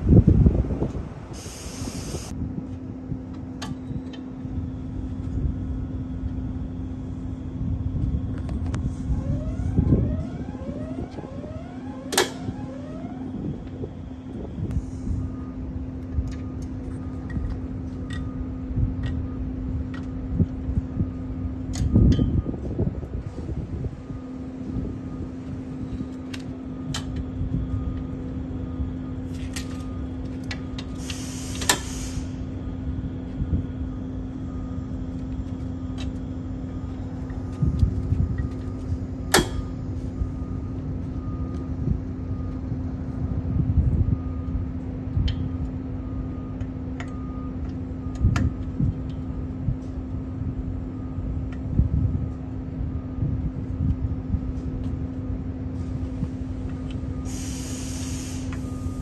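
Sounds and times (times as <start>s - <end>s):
low hum with rumble: 0.0s - 59.0s
brief hiss: 1.4s - 2.3s, 31.0s - 32.4s, 57.3s - 58.9s.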